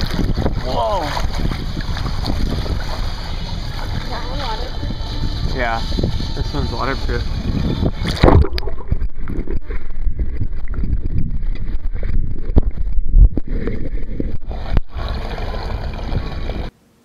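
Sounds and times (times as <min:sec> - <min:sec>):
muffled water churning and splashing: 0:00.0 - 0:16.7
camera bumping in water: 0:08.0 - 0:13.4.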